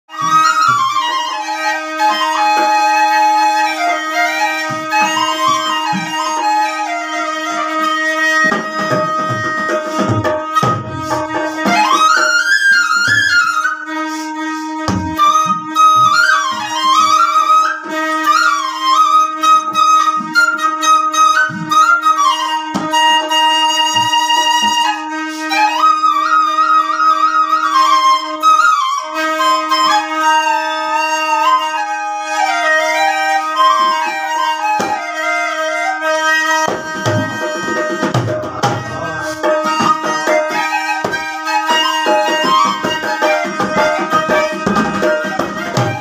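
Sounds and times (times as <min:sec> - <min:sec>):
double flute folk melody with drone: 0:00.1 - 0:46.0.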